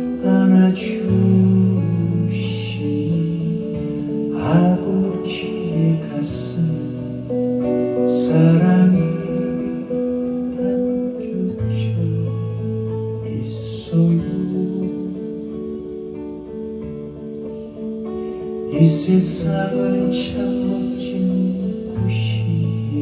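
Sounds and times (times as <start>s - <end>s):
acoustic guitar strumming: 0.0s - 23.0s.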